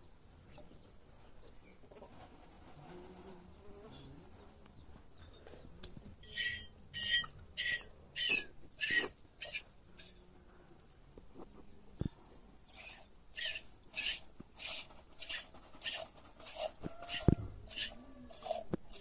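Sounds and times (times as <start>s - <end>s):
milk squirting into metal pot: 12.7s - 19.0s.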